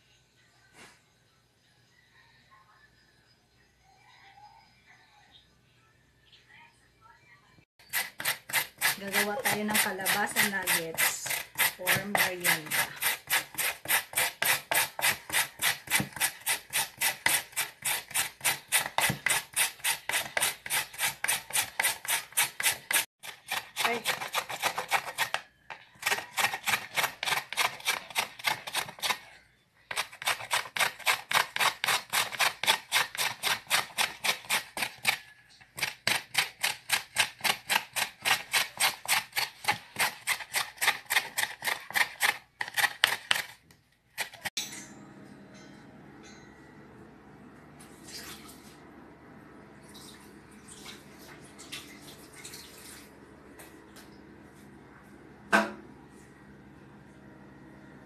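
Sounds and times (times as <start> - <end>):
squash grated on hand grater: 7.8 - 25.4, 26.0 - 29.3, 29.9 - 35.2, 35.8 - 43.6.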